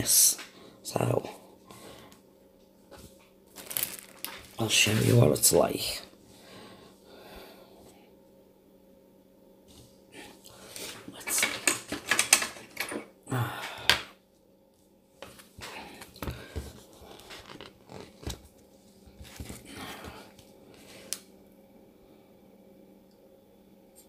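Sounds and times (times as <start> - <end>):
plastic and paper rustling: 3.0 - 5.4, 15.3 - 21.1
plastic wrapping crackling: 3.5 - 4.7, 17.0 - 18.5.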